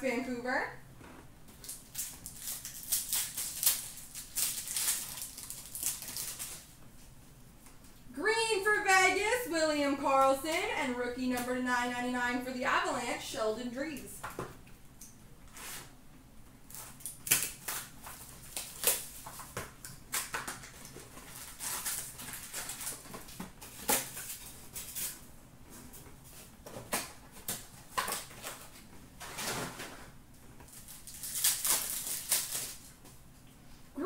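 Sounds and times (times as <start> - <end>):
wrapper crinkling and rustling: 1.5 - 6.8, 16.7 - 25.2, 26.3 - 33.0.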